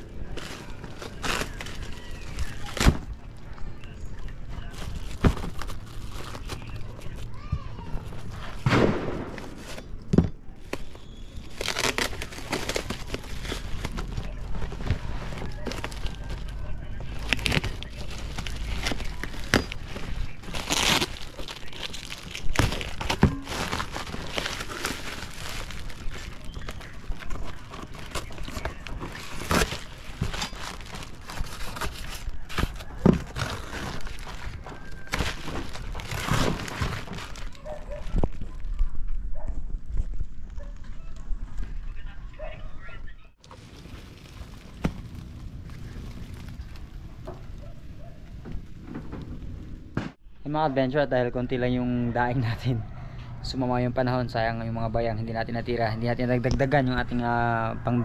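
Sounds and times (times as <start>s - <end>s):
plastic parcel crinkling: 0.0s - 8.6s, 10.6s - 38.9s, 43.4s - 48.4s
paper and plastic bags rustling: 0.0s - 8.7s, 9.3s - 40.8s, 43.4s - 49.5s
knife cutting packing tape: 11.5s - 14.2s, 17.2s - 37.6s.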